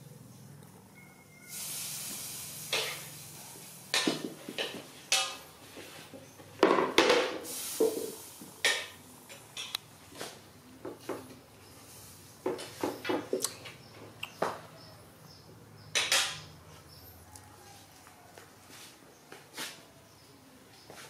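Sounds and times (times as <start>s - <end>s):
steady hiss: 1.4s - 6.2s, 7.1s - 13.1s
plastic chair knocking on concrete: 6.6s - 8.2s, 12.4s - 13.4s.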